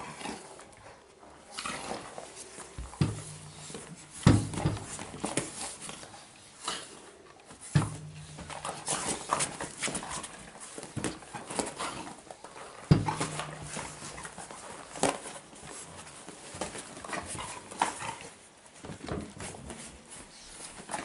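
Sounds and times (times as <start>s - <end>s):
dogs scuffling on bed: 0.0s - 21.0s
heavy thump: 2.9s - 5.2s, 7.8s - 8.9s, 12.9s - 14.0s.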